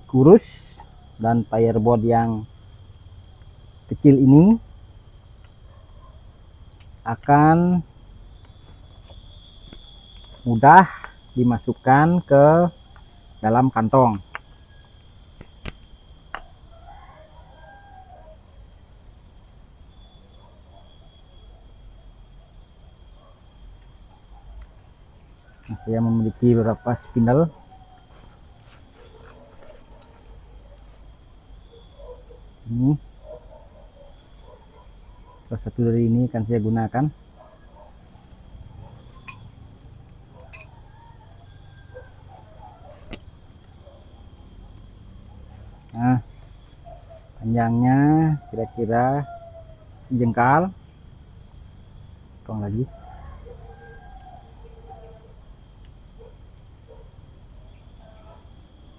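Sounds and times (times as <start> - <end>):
distant rooster crowing: 0.0 - 6.5, 7.1 - 18.8, 19.8 - 35.5, 36.3 - 51.2, 52.4 - 57.0
insects chirring: 0.0 - 58.9
faint high-pitched calls: 57.6 - 58.5.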